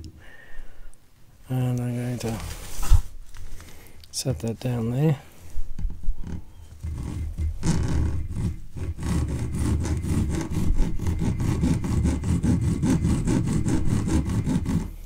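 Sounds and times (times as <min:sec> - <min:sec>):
file rasping on steel: 0:06.5 - 0:15.0.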